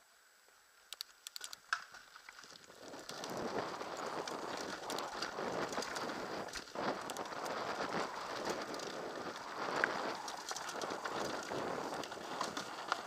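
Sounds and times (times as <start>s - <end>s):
sharp clicks: 0.9s - 1.9s
bike rattling: 2.4s - 13.0s
knobby tyres rushing on dirt: 2.5s - 13.0s.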